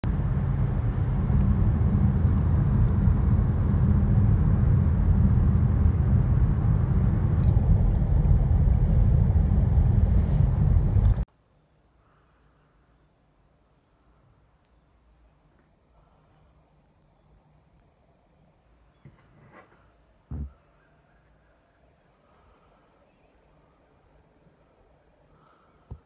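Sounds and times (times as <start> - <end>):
car engine noise: 0.0 - 11.3
car road and tyre rumble: 0.0 - 11.3.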